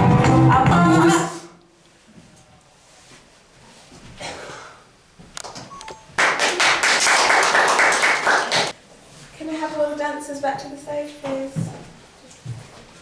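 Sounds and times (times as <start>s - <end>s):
audience applauding: 6.2s - 8.8s.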